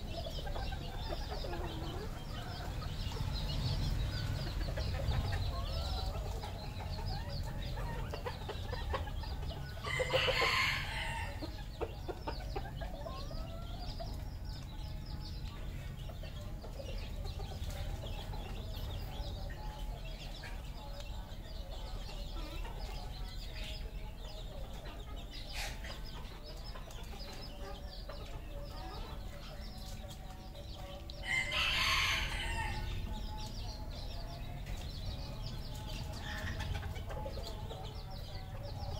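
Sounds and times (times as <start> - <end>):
roosters crowing: 0.0 - 14.8, 30.5 - 38.9
chickens clucking: 0.0 - 38.9.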